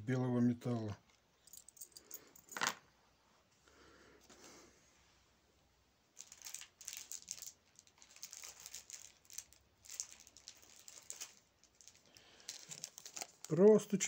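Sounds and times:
plastic bag crinkling: 6.2 - 14.0.

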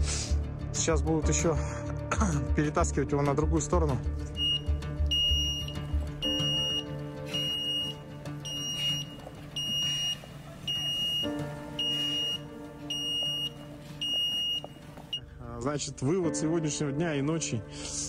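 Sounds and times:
truck reversing alarm beeping: 4.4 - 15.2.

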